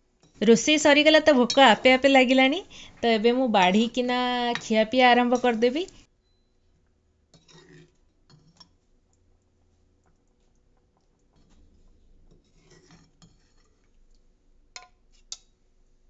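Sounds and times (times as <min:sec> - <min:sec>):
metal ladle scraping metal pot: 0:07.4 - 0:08.7, 0:11.4 - 0:13.9.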